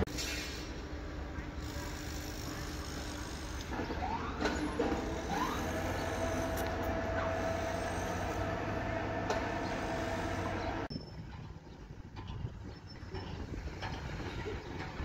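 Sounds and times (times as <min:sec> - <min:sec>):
machinery engine rumble: 0:00.0 - 0:15.0
high machine whine: 0:01.6 - 0:11.2.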